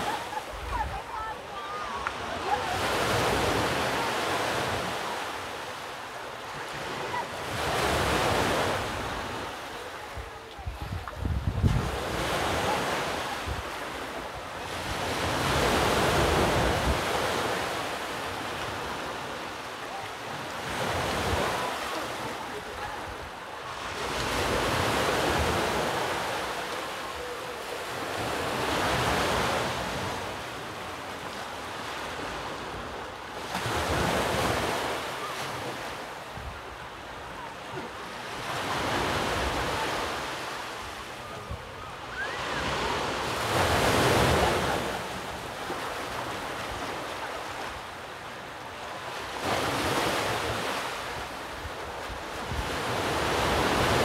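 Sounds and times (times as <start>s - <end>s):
ocean surf on shore: 0.0s - 54.0s
wind buffeting microphone: 10.1s - 12.3s.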